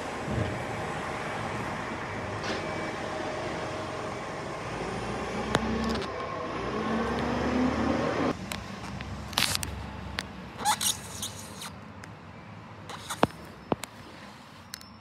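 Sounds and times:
garbage truck diesel engine: 0:00.0 - 0:11.2.

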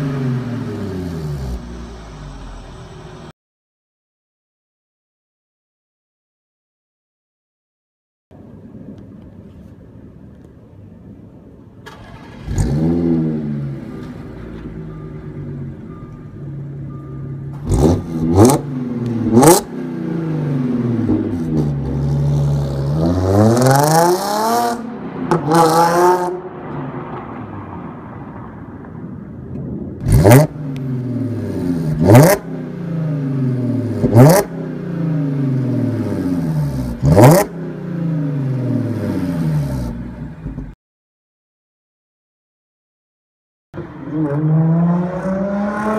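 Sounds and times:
car engine revving and idling: 0:00.0 - 0:03.3, 0:11.9 - 0:27.5, 0:30.0 - 0:40.8, 0:43.8 - 0:45.9.

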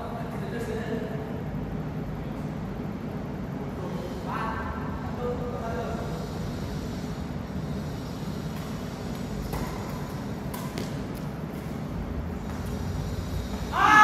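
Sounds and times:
steady low hum: 0:00.0 - 0:14.0
badminton racket hitting shuttlecock: 0:08.5 - 0:11.8.

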